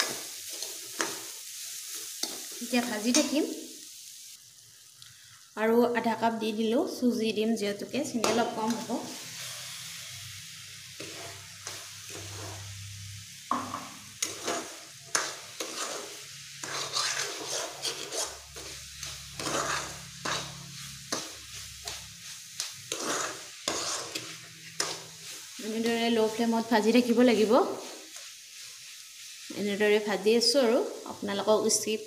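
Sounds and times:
light sizzle: 0.0s - 32.0s
metal spatula scraping a pan: 8.2s - 29.6s.

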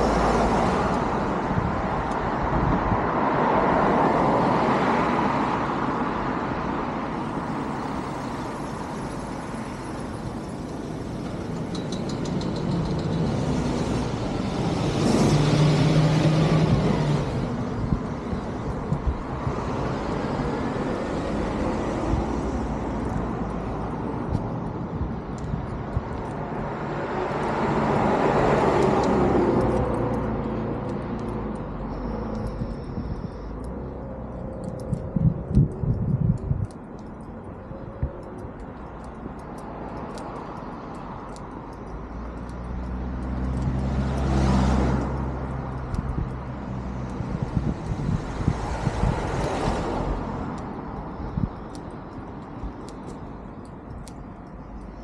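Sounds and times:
car passing on road: 0.0s - 55.0s
traffic rumble: 0.0s - 55.0s
car passing by: 13.2s - 17.9s, 42.4s - 50.8s.

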